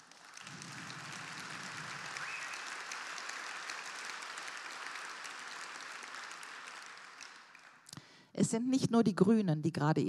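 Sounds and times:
large audience applauding: 0.0s - 8.0s.

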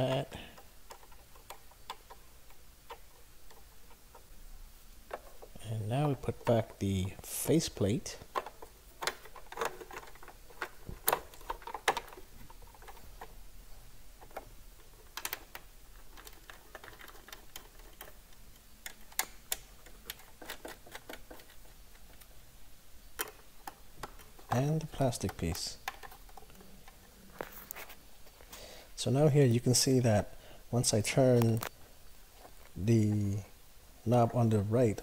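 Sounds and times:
plastic and metal parts clicking: 0.0s - 4.3s, 8.1s - 13.4s, 14.2s - 22.3s, 23.1s - 27.9s.

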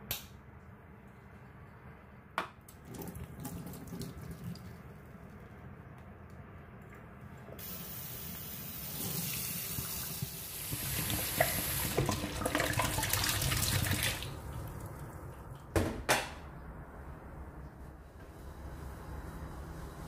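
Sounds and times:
tap water splashing into sink: 10.7s - 14.4s.

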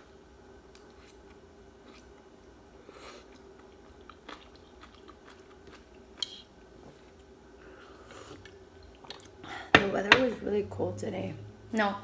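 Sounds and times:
faint steady hum: 0.0s - 12.0s
faint chewing of noodles: 0.7s - 9.4s.

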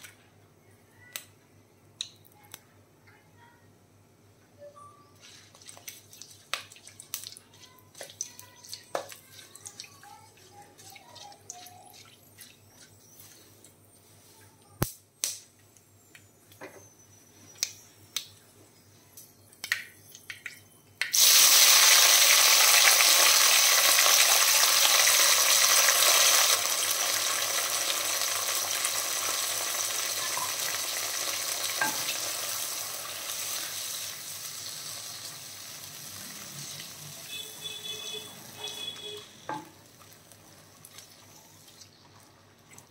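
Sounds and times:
food sizzling in hot oil: 21.1s - 37.3s.

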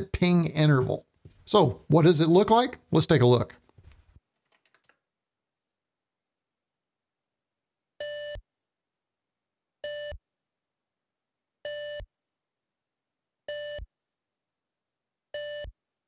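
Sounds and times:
short buzzy electronic beeps: 11.7s - 12.1s, 13.5s - 13.9s, 15.4s - 15.7s.

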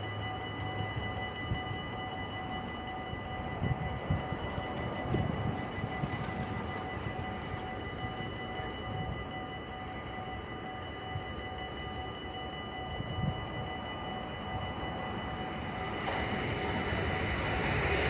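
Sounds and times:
level crossing warning bell: 0.0s - 18.0s
wind buffeting microphone: 0.6s - 9.4s.

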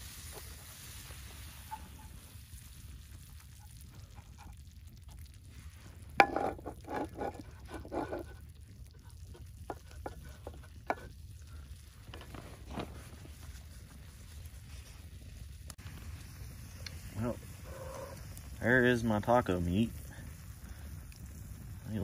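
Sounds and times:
spatula scraping skillet: 0.0s - 2.8s, 3.5s - 11.3s
meat frying: 0.0s - 22.0s
spatula knocking pan: 6.2s - 8.0s, 9.4s - 11.1s.

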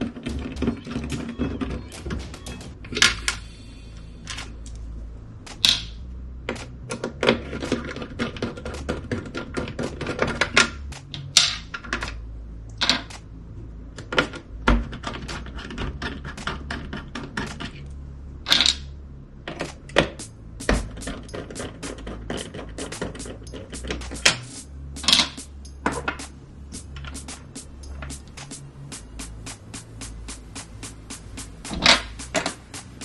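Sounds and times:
small parts clicking and rattling: 14.0s - 18.9s.

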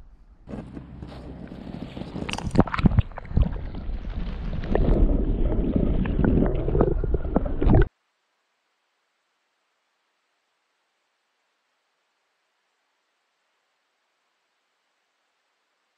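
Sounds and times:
water splashing and slapping: 1.8s - 7.9s
muffled underwater gurgling: 2.2s - 7.9s.

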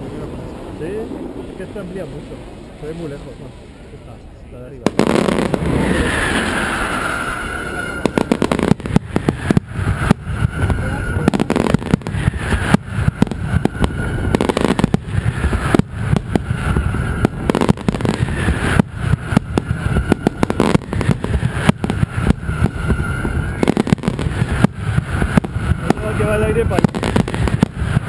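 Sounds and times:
firecrackers banging: 4.7s - 28.0s
high whistling tone: 5.6s - 28.0s.

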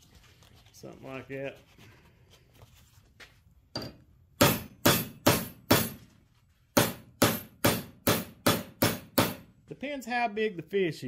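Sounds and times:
hammer striking steel bar: 3.8s - 6.0s, 6.8s - 9.5s.

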